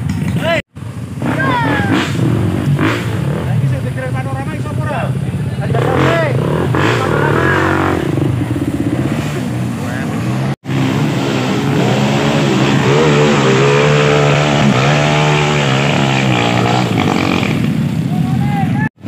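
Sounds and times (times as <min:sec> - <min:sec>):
onlookers calling out: 0:01.2 - 0:02.2.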